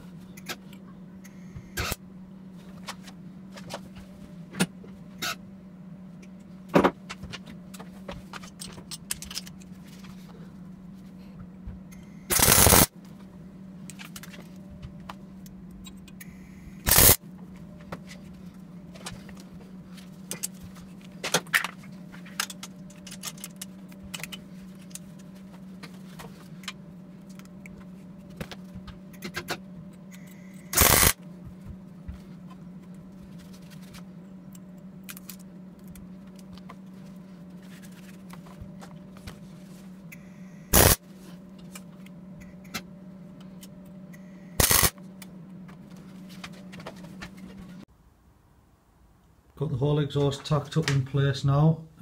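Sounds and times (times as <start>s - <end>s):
steady low hum: 0.0s - 52.0s
clicks of pipe and tools handled: 7.1s - 10.1s, 20.2s - 27.8s
arc welding bursts: 12.3s - 12.9s, 16.8s - 17.2s, 30.7s - 31.2s, 40.7s - 41.0s, 44.6s - 44.9s.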